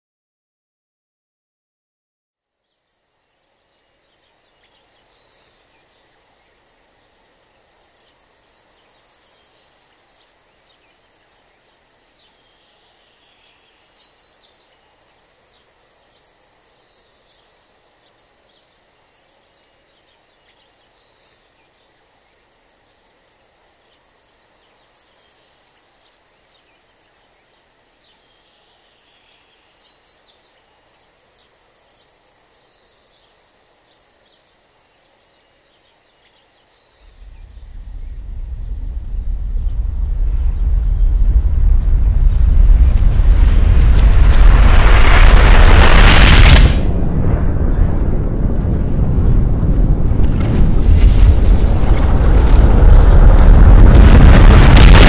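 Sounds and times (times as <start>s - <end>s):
buzzy insect trills: 2.4s - 45.2s
fast-pulsing insect chirp: 2.4s - 46.8s.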